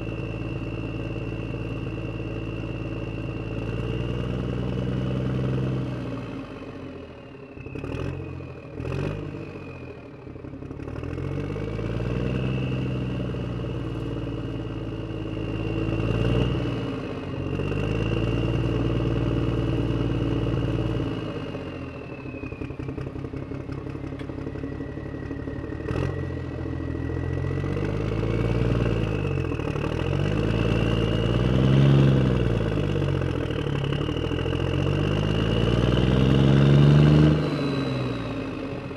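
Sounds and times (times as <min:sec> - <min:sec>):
vehicle engine revving: 0:07.6 - 0:09.7, 0:10.7 - 0:21.9, 0:25.6 - 0:38.9.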